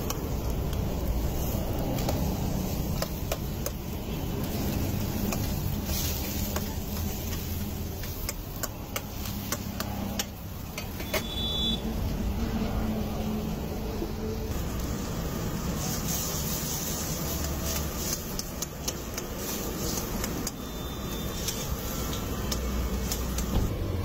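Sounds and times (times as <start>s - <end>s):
steady low rumble: 0.0s - 9.4s.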